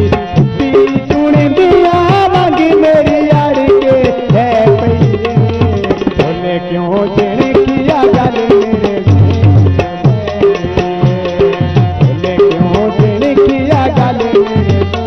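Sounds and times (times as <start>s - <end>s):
tabla playing steady rhythm: 0.0s - 15.0s.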